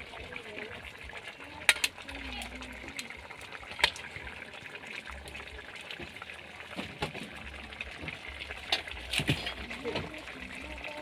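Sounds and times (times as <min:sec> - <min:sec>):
liquid bubbling and hissing: 0:00.0 - 0:11.0.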